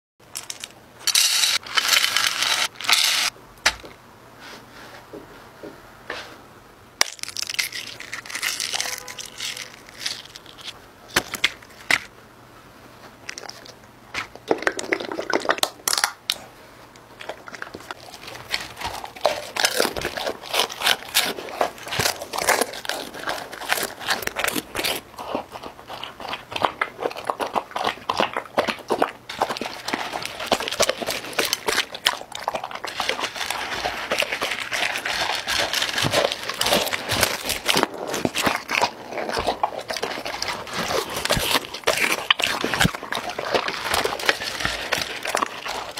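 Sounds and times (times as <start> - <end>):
dog lapping and eating: 13.3 - 15.9, 17.1 - 45.9.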